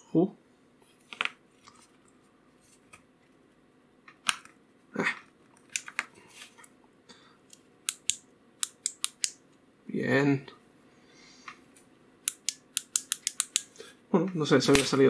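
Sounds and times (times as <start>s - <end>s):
small metal parts clicking: 12.3s - 13.8s.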